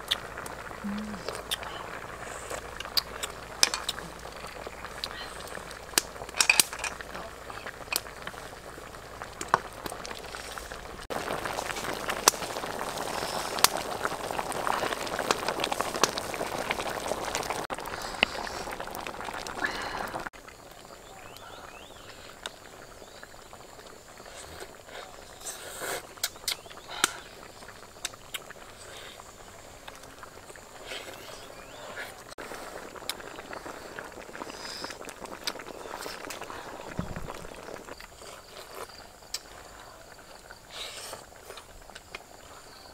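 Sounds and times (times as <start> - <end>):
soup boiling in a wok: 0.0 - 42.9
ladle and bowl clicks: 2.8 - 4.0, 5.9 - 7.0.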